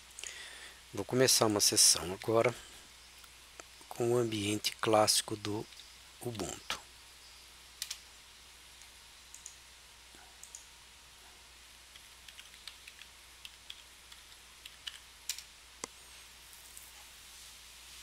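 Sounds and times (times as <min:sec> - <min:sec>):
computer keyboard clicks: 0:07.8 - 0:08.0, 0:11.9 - 0:15.5.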